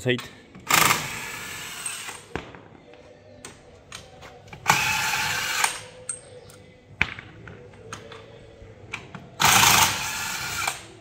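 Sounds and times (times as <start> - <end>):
impact wrench running: 0.7 - 2.2, 9.4 - 10.8.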